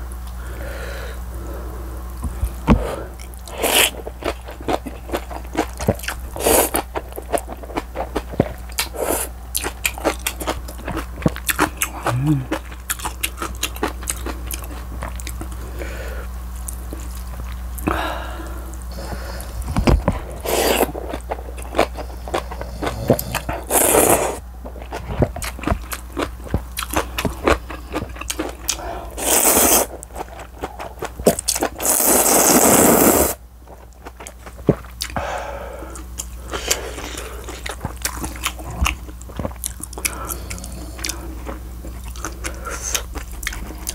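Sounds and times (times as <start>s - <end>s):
chewing and crunching: 2.2s - 17.9s, 18.8s - 32.6s, 33.6s - 35.3s, 35.9s - 43.9s
slurping noodles: 20.2s - 21.1s, 21.8s - 24.4s, 29.2s - 30.0s, 31.8s - 33.4s.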